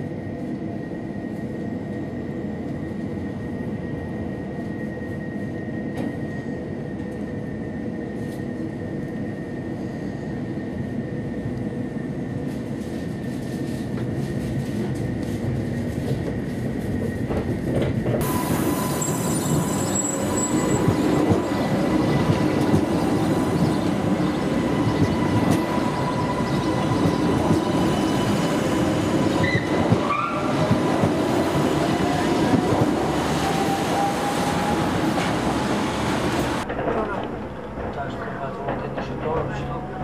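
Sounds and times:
tram rumble: 0.0s - 40.0s
tram wheels squealing on rails: 12.4s - 40.0s.

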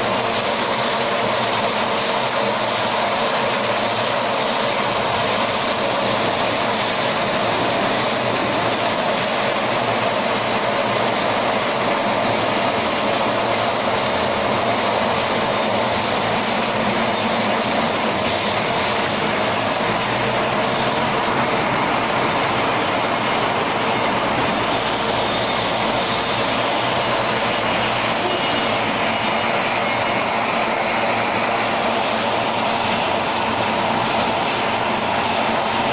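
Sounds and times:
log lathe machine noise: 0.0s - 35.9s.

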